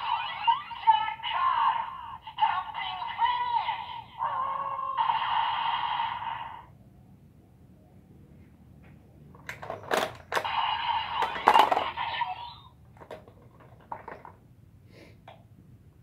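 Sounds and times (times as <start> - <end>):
toy electronic sound effect: 0.0 - 6.7, 9.6 - 13.2
plastic clicks: 9.4 - 10.5, 11.2 - 12.0.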